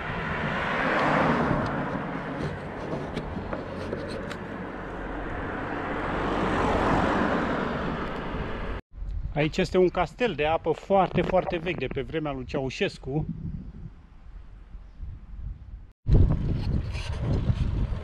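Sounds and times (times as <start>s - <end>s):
wind rumble on microphone: 0.0s - 4.4s, 5.0s - 18.0s
cars passing on road: 0.0s - 8.8s.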